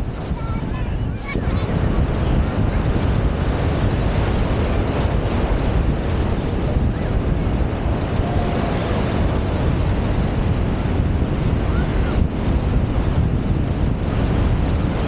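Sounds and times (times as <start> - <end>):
ocean surf breaking on beach: 0.0 - 15.0
wind buffeting microphone: 0.0 - 15.0.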